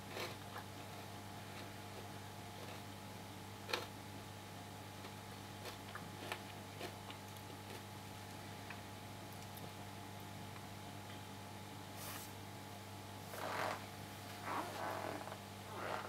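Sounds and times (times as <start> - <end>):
aquarium equipment humming: 0.0 - 16.0.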